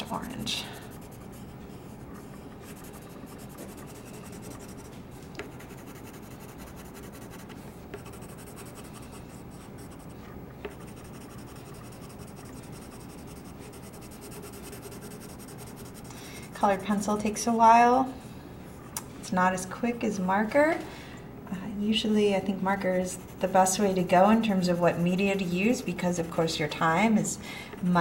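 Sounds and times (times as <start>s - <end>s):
colored pencil scratching on paper: 0.0s - 16.8s, 22.3s - 26.5s.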